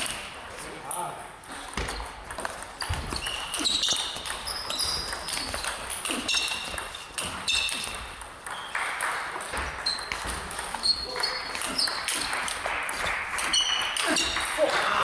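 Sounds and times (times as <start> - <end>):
shoes squeaking on floor: 1.5 - 8.8, 9.5 - 12.3, 13.4 - 14.3.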